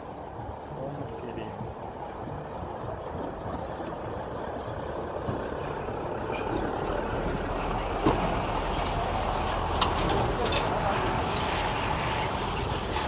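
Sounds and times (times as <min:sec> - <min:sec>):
garbage truck engines: 0:06.2 - 0:13.0.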